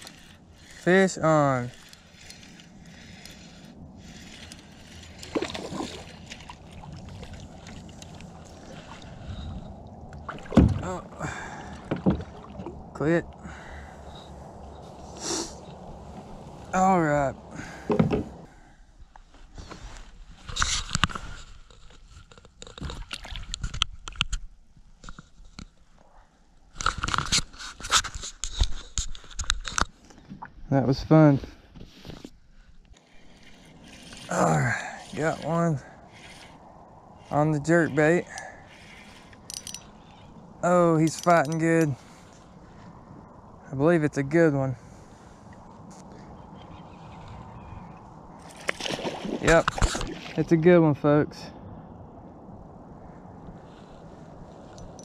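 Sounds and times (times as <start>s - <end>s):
fishing reel cranking: 0.0s - 5.3s
gear clicks knocks and scrapes: 0.0s - 6.5s, 26.7s - 30.4s, 41.0s - 42.0s
reel ticks and rod handling: 0.0s - 9.4s, 20.4s - 25.9s, 26.7s - 30.2s, 31.8s - 42.5s, 54.6s - 55.0s
water lapping at hull: 0.0s - 15.1s, 33.0s - 40.6s.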